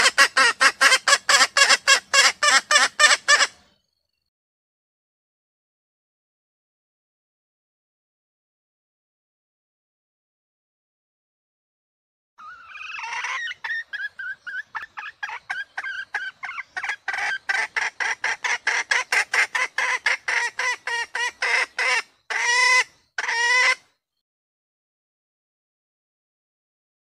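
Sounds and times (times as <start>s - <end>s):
hen calling: 0.0s - 3.6s, 12.4s - 23.9s.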